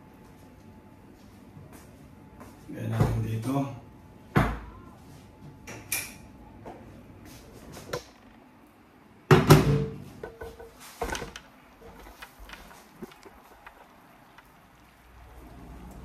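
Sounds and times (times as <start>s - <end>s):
kitchen knocks and clatters: 9.3s - 13.8s.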